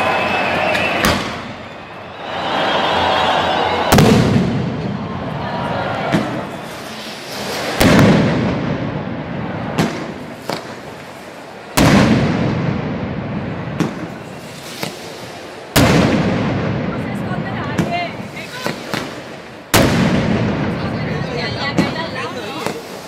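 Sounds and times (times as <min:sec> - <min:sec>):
firecracker bangs: 0:00.7 - 0:01.7, 0:03.9 - 0:05.2, 0:06.0 - 0:11.1, 0:11.7 - 0:23.0
rumbling echo: 0:03.9 - 0:06.7, 0:07.8 - 0:10.8, 0:11.8 - 0:14.4, 0:15.5 - 0:18.3, 0:19.2 - 0:22.1
small firecracker cracks: 0:09.8 - 0:11.1.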